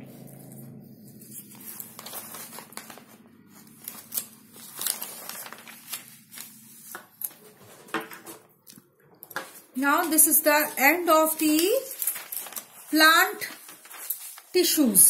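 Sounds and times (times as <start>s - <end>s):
paper pages turning: 1.1s - 15.0s.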